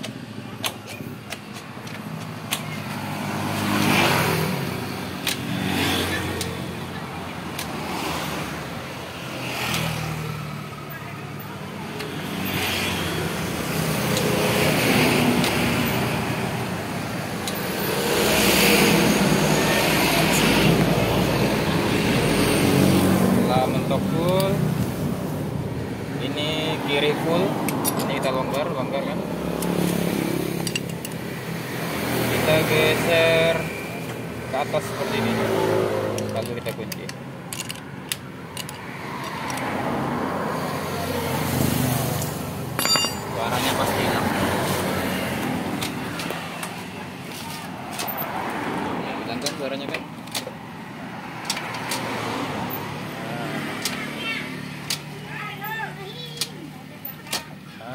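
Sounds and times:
wrench clicking on metal: 36.2s - 39.7s.

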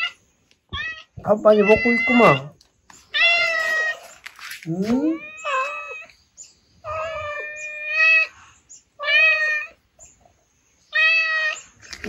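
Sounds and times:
cat meowing: 0.0s - 4.2s, 4.9s - 6.1s, 6.8s - 8.4s, 9.0s - 9.8s, 10.9s - 11.7s.

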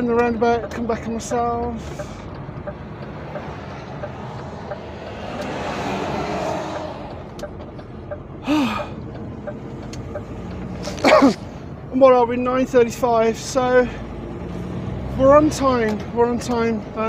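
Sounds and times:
diesel engine running: 0.0s - 17.0s
road noise inside cab: 0.0s - 17.0s
breathy vocal sound: 8.4s - 9.0s.

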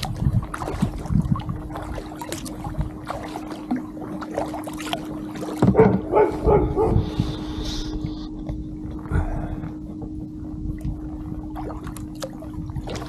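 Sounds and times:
water splashing and dripping: 0.0s - 6.5s, 10.8s - 13.0s
kayak paddle strokes: 0.0s - 9.0s
dog barking: 5.7s - 7.1s.

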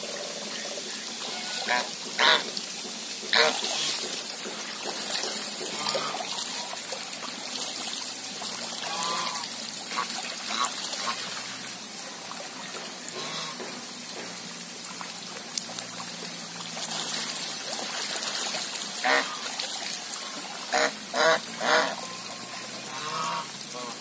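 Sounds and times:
water trickling and splashing: 0.0s - 24.0s
faint goose calls: 13.1s - 13.6s, 20.2s - 24.0s.

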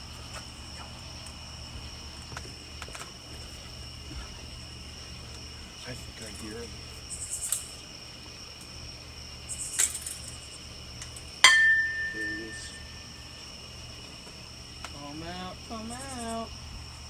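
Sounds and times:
crickets chirping: 0.0s - 17.0s
sharp clink with ringing tone: 11.4s - 13.2s.

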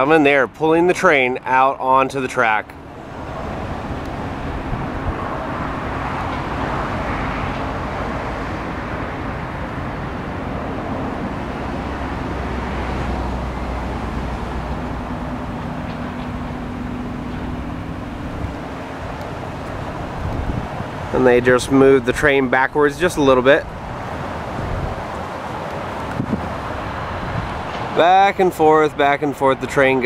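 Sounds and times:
road traffic passing: 0.0s - 30.0s
low engine hum: 2.6s - 22.4s, 23.0s - 28.0s.

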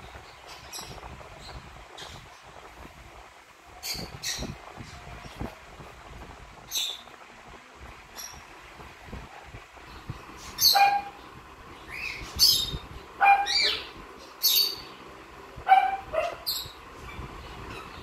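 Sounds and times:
cockatiel chirping: 10.5s - 11.2s, 11.9s - 14.9s.

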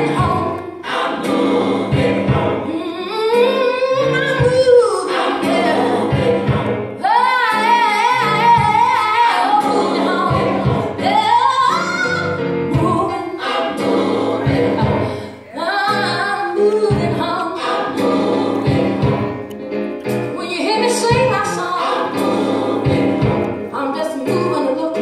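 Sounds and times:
bass and beat: 1.2s - 2.7s, 4.2s - 6.9s, 9.7s - 11.2s, 12.7s - 13.1s, 18.0s - 19.5s, 20.9s - 23.6s.

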